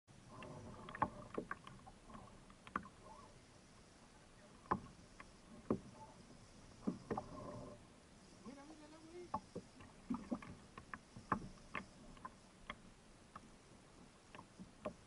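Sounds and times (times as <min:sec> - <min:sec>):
faint wind and water: 0:00.1 - 0:15.0
knocks and clatter on kayak: 0:00.3 - 0:03.2, 0:04.6 - 0:06.1, 0:06.8 - 0:07.7, 0:09.3 - 0:13.5, 0:14.3 - 0:15.0.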